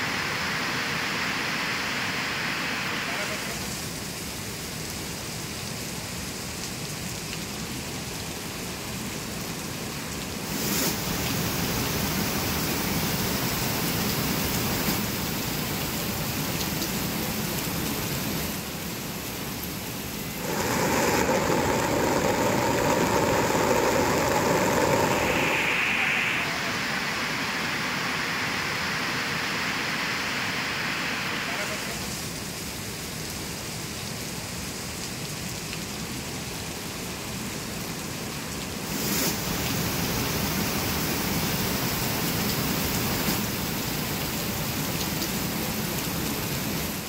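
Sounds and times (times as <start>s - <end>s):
rushing water: 0.0s - 5.5s, 6.1s - 47.0s
heavy rain: 0.0s - 47.0s.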